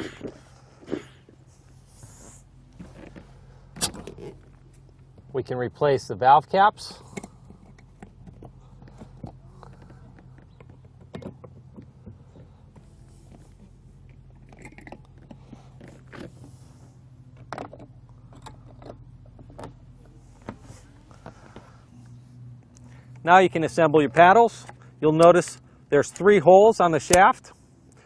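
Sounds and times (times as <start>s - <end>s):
handling rubs: 0.0s - 5.3s, 6.9s - 23.2s
steady low hum: 0.0s - 28.0s.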